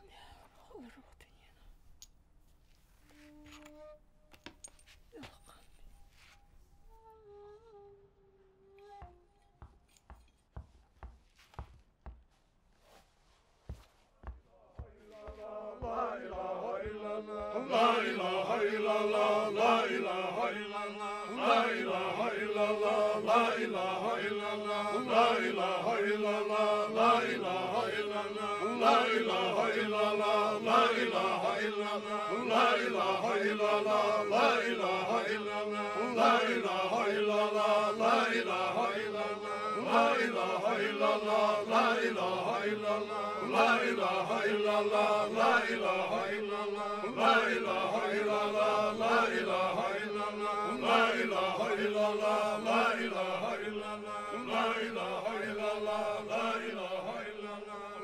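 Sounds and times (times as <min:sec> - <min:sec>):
men chanting together: 0:14.8 - 0:58.0.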